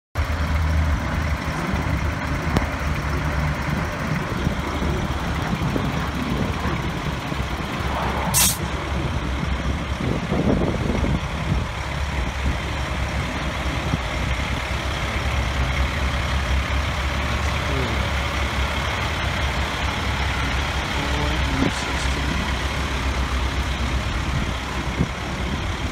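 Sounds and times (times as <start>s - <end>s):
diesel engine idling: 0.2s - 25.9s
air brakes hissing: 8.3s - 8.7s.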